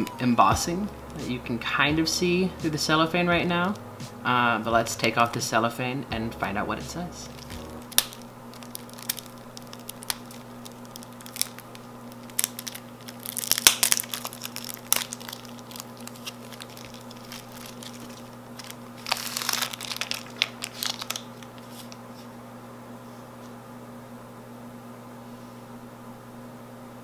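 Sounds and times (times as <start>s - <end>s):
cellophane wrapper crinkling: 7.2s - 22.3s.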